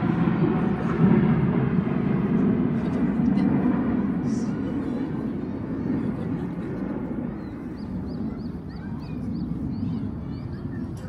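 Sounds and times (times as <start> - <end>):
jets rumbling overhead: 0.0 - 11.0.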